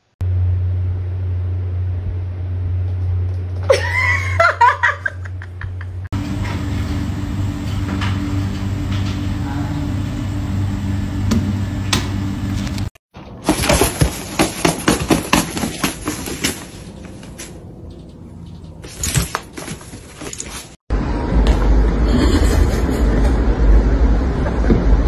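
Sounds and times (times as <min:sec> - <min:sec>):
steady background drone: 0:00.0 - 0:04.4, 0:05.0 - 0:12.9, 0:16.6 - 0:20.0, 0:20.9 - 0:25.0
steady low hum: 0:00.2 - 0:25.0.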